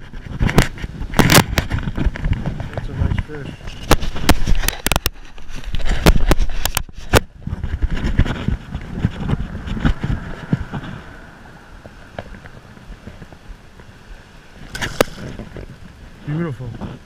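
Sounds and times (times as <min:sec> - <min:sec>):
wind: 0:00.0 - 0:17.0
water sloshing: 0:14.5 - 0:16.1.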